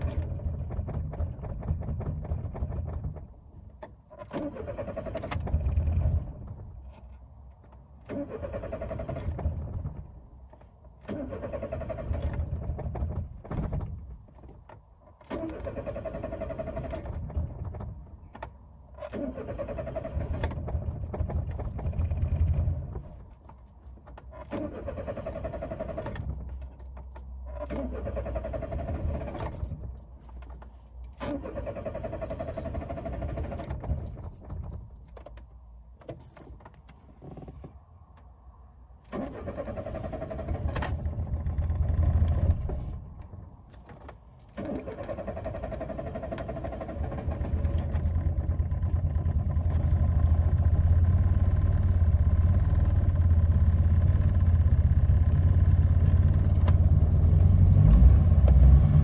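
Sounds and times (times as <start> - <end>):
car engine cranking on starter: 0.0 - 3.3, 4.1 - 6.6, 8.0 - 10.2, 11.0 - 14.1, 15.2 - 17.9, 19.0 - 23.2, 24.2 - 30.0, 31.1 - 34.9, 39.1 - 43.1, 43.8 - 59.0.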